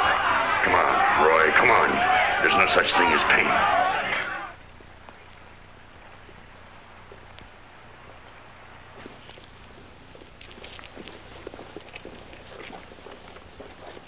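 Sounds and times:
insect high pulsing trill: 4.4s - 14.0s
insect short chirps: 4.5s - 10.0s.

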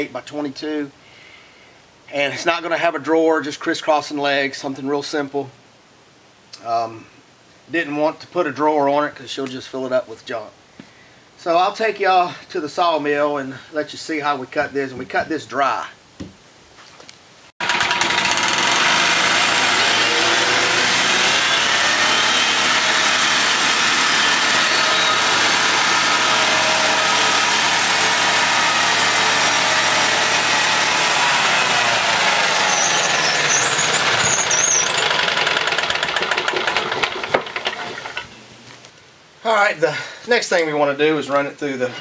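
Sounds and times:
saw cutting a dry board: 17.6s - 38.2s
small engine running: 17.6s - 38.2s.

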